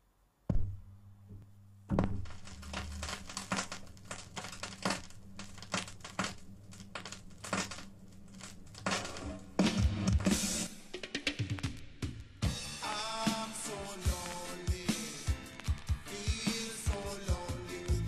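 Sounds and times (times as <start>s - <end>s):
low mains hum: 0.0s - 10.7s
vinyl record crackle and pops: 0.0s - 18.0s
stylus dropping onto record: 0.5s - 11.9s.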